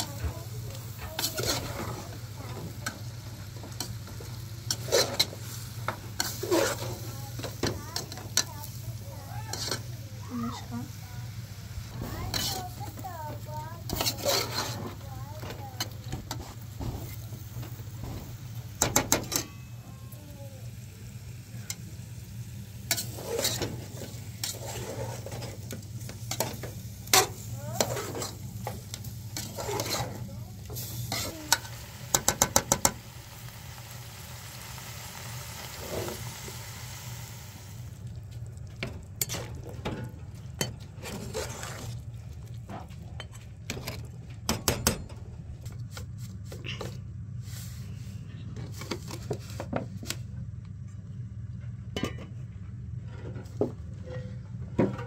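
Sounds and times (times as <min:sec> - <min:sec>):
meat sizzling in a pot: 0:00.0 - 0:42.1
metal spoon scraping a pot: 0:01.0 - 0:03.0, 0:03.6 - 0:05.6, 0:06.2 - 0:08.5, 0:09.5 - 0:09.9, 0:13.9 - 0:16.6, 0:22.9 - 0:31.7, 0:40.6 - 0:42.0.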